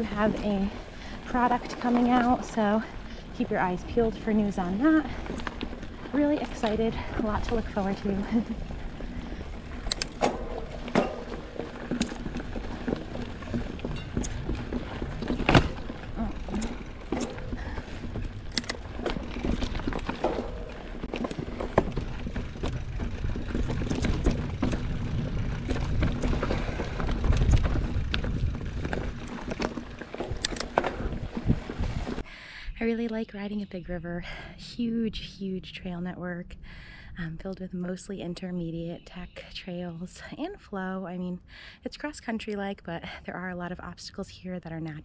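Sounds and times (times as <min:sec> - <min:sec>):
bike knocking and rattling: 0:00.0 - 0:32.2
bike tyres rumbling: 0:00.0 - 0:32.3
wind on microphone: 0:21.9 - 0:29.6, 0:30.3 - 0:32.2.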